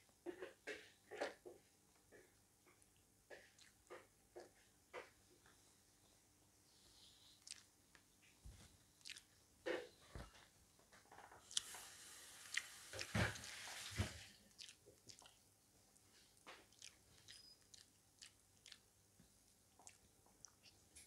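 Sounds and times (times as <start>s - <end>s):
chewing with wet mouth smacks: 2.7s - 4.5s, 7.4s - 8.0s, 9.0s - 9.8s, 11.5s - 11.8s, 12.4s - 13.6s, 14.2s - 15.5s, 16.4s - 18.9s, 19.5s - 21.0s.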